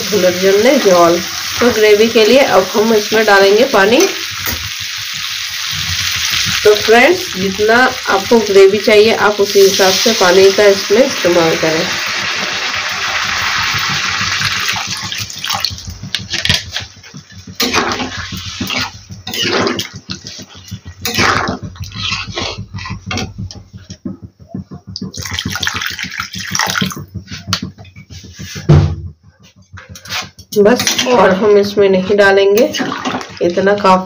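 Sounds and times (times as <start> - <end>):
water pouring into hot pan: 0.0 - 17.4, 25.1 - 27.0, 32.7 - 34.0
low knock: 20.7 - 30.0.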